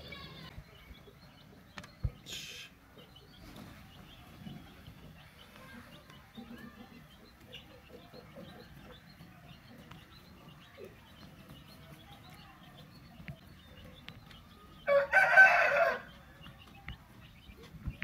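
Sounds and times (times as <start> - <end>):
faint chicken clucking: 0.0 - 18.0
rooster crowing: 14.8 - 16.1.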